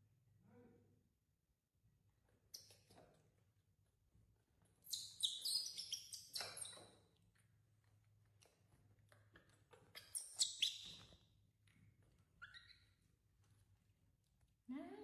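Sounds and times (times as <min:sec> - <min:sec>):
young monkey squeaking: 0:04.9 - 0:06.9, 0:09.9 - 0:11.2, 0:12.4 - 0:13.0.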